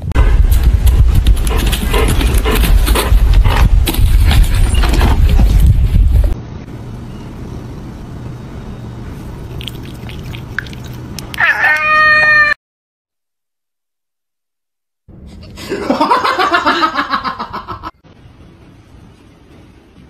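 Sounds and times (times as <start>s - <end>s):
cat meowing: 11.3s - 12.6s.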